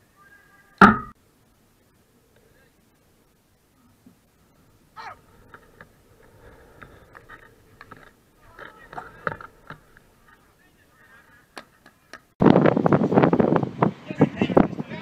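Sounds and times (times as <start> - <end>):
players shouting: 5.0 - 5.6, 8.4 - 11.6
hockey sticks clacking ball: 6.8 - 10.4
wind buffeting microphone: 12.4 - 15.0.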